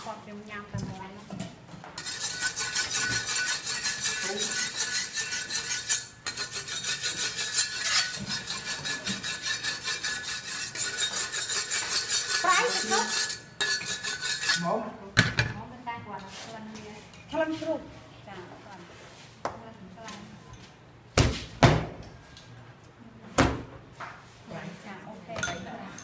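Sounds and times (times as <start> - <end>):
metal utensil scraping metal: 2.0 - 14.8.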